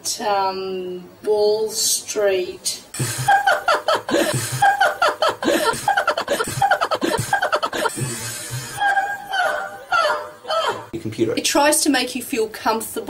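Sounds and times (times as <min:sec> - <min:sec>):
woman laughing heartily: 0:03.0 - 0:11.0.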